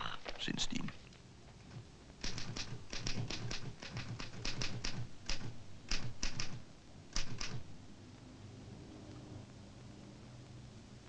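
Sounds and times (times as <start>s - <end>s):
typewriter keystrokes: 1.7s - 7.7s.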